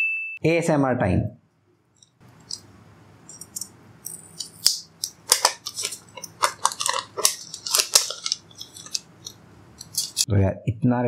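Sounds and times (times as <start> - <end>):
plastic film peeling and crackling: 3.3 - 10.3.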